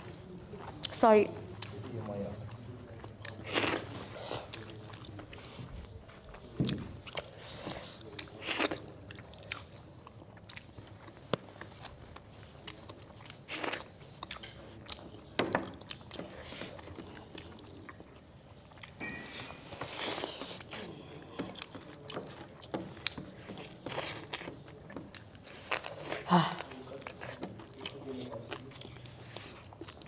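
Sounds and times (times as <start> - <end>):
chewing and biting: 6.2 - 19.0, 19.7 - 30.0.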